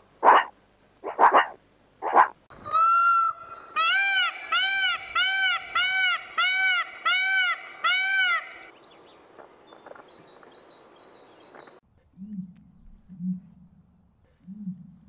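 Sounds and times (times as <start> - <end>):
peacock honking calls: 2.6 - 8.7.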